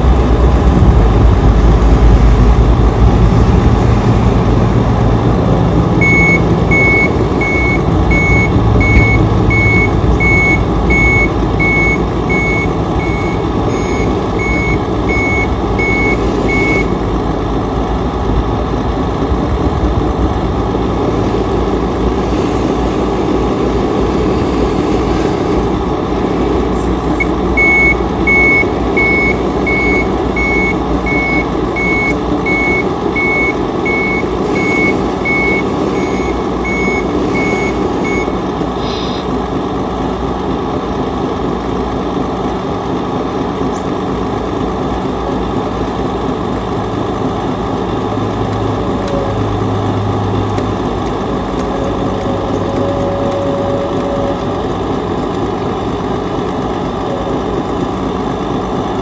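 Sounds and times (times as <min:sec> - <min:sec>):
truck engine running: 0:00.0 - 0:59.0
reversing alarm beeping: 0:06.0 - 0:17.0, 0:27.2 - 0:38.4, 0:51.5 - 0:54.6.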